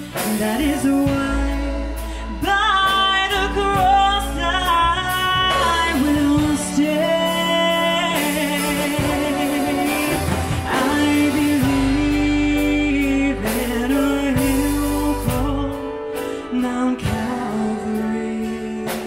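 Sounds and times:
keyboard: 0:00.0 - 0:19.0
woman singing gospel song: 0:00.0 - 0:19.0.

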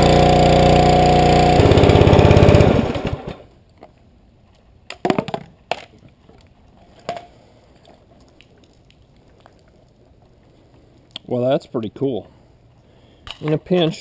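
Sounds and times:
engine cutting off: 0:00.0 - 0:03.5.

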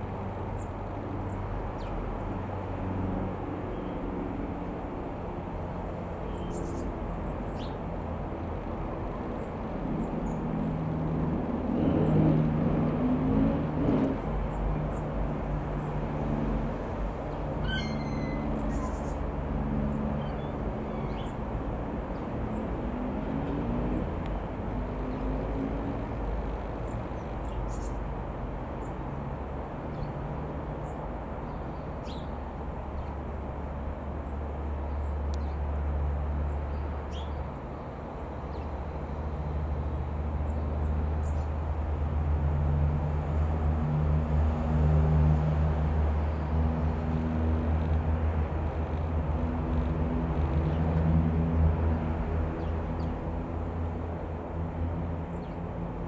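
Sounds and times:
propeller aeroplane droning overhead: 0:00.0 - 0:56.0
birds chirping: 0:17.2 - 0:19.3.

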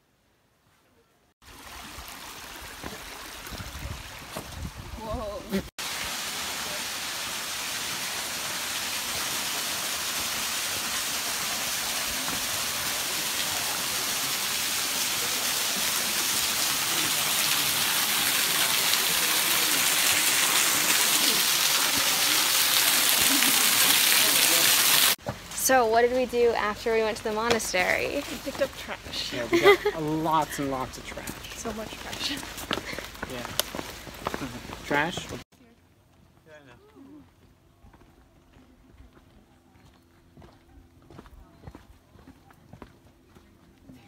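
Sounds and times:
waterfall pouring onto rock: 0:01.5 - 0:04.5, 0:05.8 - 0:25.2.

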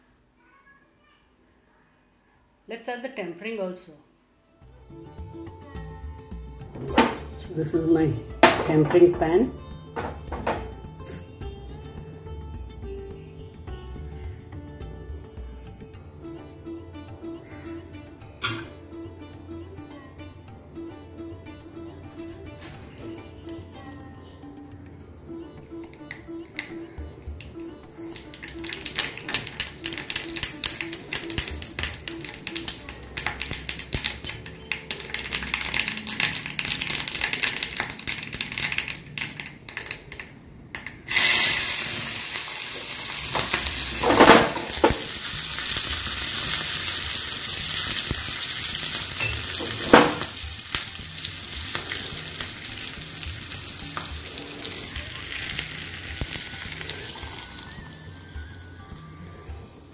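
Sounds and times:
seeds popping in hot oil: 0:27.4 - 0:57.9
loud steady sizzle: 0:32.2 - 0:59.3.

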